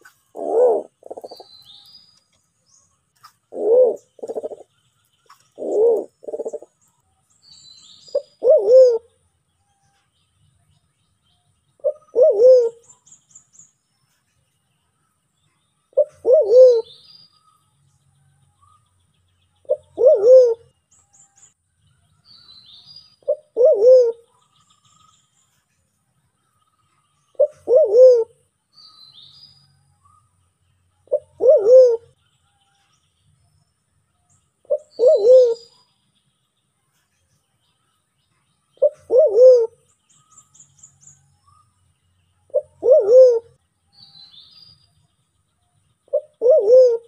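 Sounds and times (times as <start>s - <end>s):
pigeon calling: 0.0s - 1.5s, 3.5s - 4.6s, 5.6s - 6.7s, 8.1s - 9.0s, 11.8s - 12.8s, 16.0s - 16.9s, 19.7s - 20.6s, 23.3s - 24.2s, 27.4s - 28.3s, 31.1s - 32.1s, 34.7s - 35.6s, 38.8s - 39.8s, 42.5s - 43.5s, 46.1s - 47.0s
faint high bird chirps: 0.0s - 47.0s.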